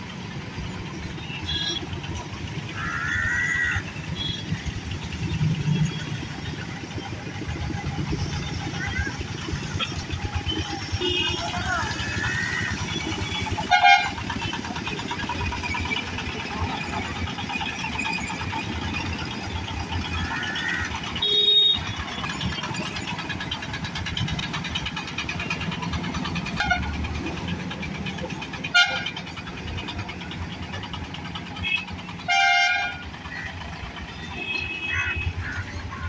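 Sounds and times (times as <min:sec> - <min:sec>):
road traffic engines: 0:00.0 - 0:36.0
horn honks: 0:01.4 - 0:02.0, 0:10.9 - 0:14.3, 0:20.4 - 0:22.0, 0:28.7 - 0:29.2, 0:31.6 - 0:33.1, 0:34.2 - 0:35.6.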